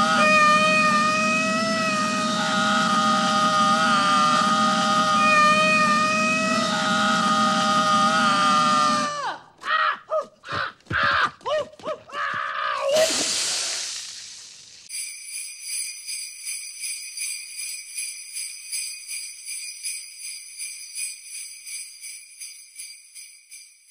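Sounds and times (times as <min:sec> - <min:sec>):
man screaming: 0:03.6 - 0:13.1
loud hiss: 0:12.8 - 0:14.9
sleigh bells jingling: 0:13.8 - 0:23.9.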